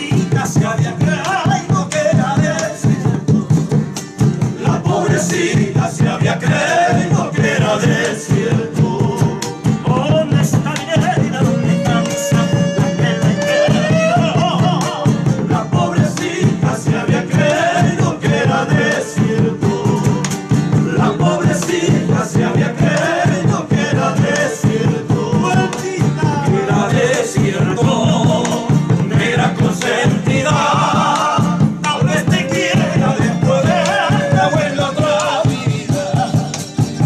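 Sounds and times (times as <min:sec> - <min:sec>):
frame drum beaten with stick: 0:00.0 - 0:37.0
men singing together: 0:00.0 - 0:37.0
strummed acoustic guitars: 0:00.0 - 0:37.0.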